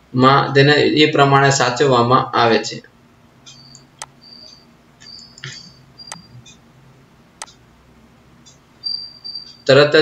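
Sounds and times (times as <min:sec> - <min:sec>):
short high-pitched chirps: 0:03.5 - 0:06.6, 0:08.8 - 0:09.7.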